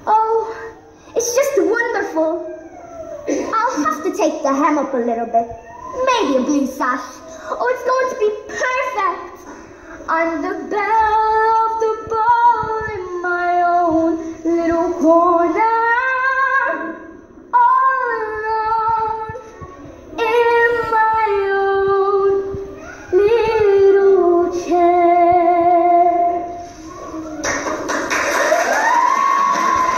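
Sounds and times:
girl singing a show tune: 0:00.0 - 0:02.7, 0:03.3 - 0:26.6.

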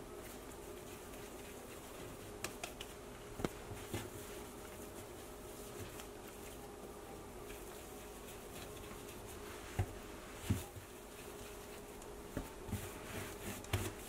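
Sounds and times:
faint steady hum: 0:00.0 - 0:14.0
hands handling dough: 0:00.0 - 0:14.0
soft thumps of dough: 0:07.4 - 0:14.0.

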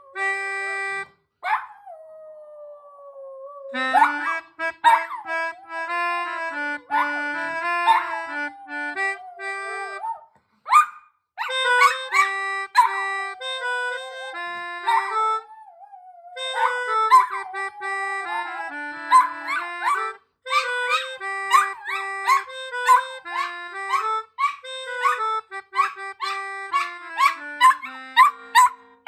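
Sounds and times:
free-reed keyboard melody: 0:00.0 - 0:01.6, 0:03.7 - 0:10.2, 0:11.4 - 0:15.7, 0:16.3 - 0:29.0
dog howling: 0:06.9 - 0:10.3, 0:11.8 - 0:25.2, 0:25.8 - 0:28.7.

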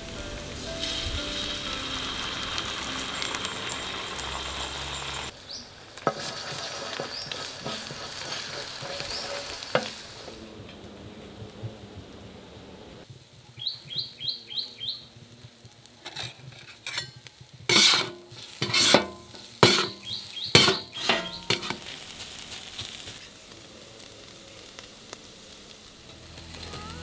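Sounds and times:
oil sizzling: 0:00.0 - 0:27.0
metal blades clanking on griddle: 0:16.1 - 0:21.9.

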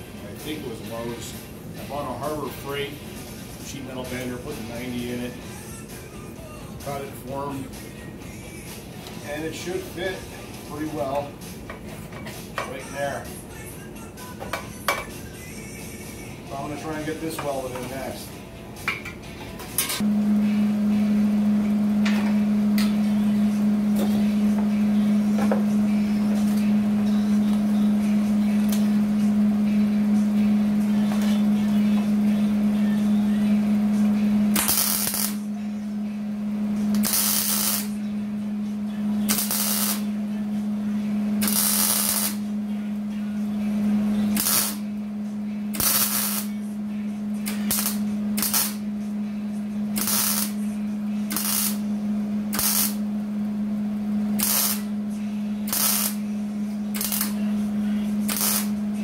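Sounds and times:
steady hum: 0:00.0 - 0:59.0
welder crackling hissing bursts: 0:34.5 - 0:35.5, 0:36.9 - 0:38.0, 0:39.2 - 0:40.1, 0:41.4 - 0:42.5, 0:44.3 - 0:44.8, 0:45.7 - 0:46.6, 0:47.5 - 0:48.8, 0:50.0 - 0:50.6, 0:51.3 - 0:51.9, 0:52.5 - 0:53.0, 0:54.4 - 0:54.9, 0:55.6 - 0:56.3, 0:56.9 - 0:57.5, 0:58.2 - 0:58.8.

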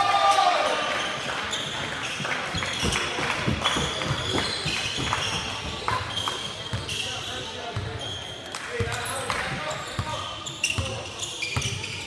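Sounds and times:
sneakers squeaking on court: 0:01.5 - 0:12.0
basketball bouncing on gym floor: 0:02.8 - 0:07.0, 0:07.8 - 0:08.0, 0:08.8 - 0:12.0.

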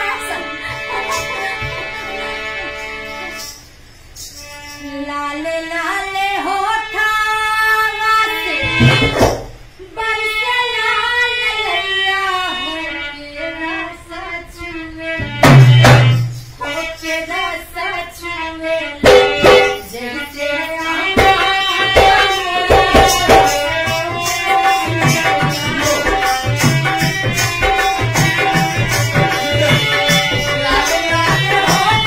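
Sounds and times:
person singing a melody: 0:09.8 - 0:32.0
loud drum hit: 0:19.0 - 0:19.8
driving drum beat: 0:19.0 - 0:19.9, 0:21.2 - 0:32.0.

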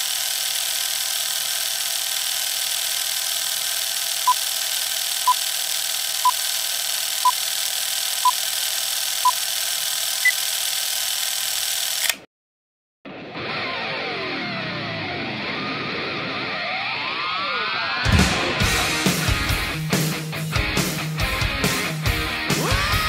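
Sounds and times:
projector whir and hiss: 0:00.0 - 0:12.1.

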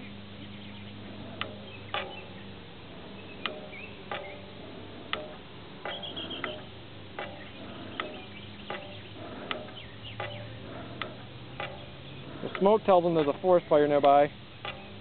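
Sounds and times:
bellows smoker clicking and puffing: 0:00.8 - 0:15.0.

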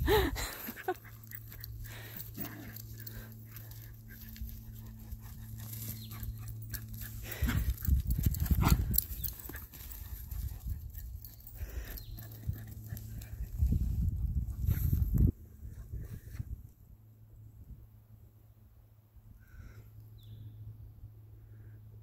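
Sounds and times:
grass rustling: 0:00.4 - 0:15.8.

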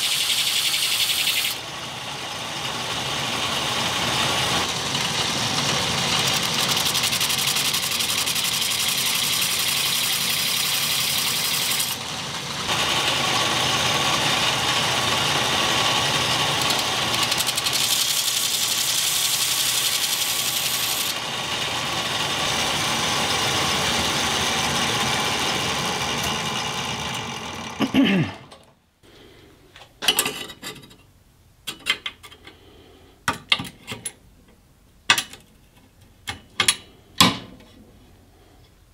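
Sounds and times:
belt grinder grinding steel: 0:00.0 - 0:27.8
motor winding down: 0:00.0 - 0:27.9.

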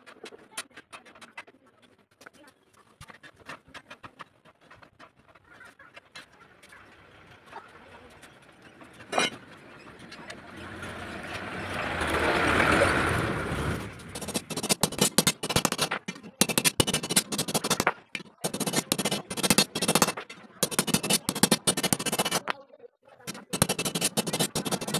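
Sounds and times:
vehicle passing: 0:10.3 - 0:14.2.

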